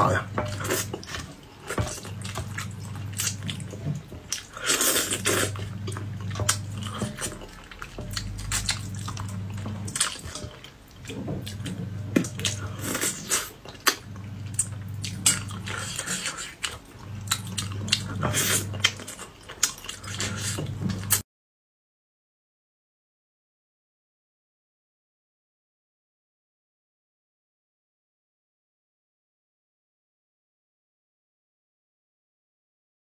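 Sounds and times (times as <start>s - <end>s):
wet chewing and slurping: 0.0s - 21.2s.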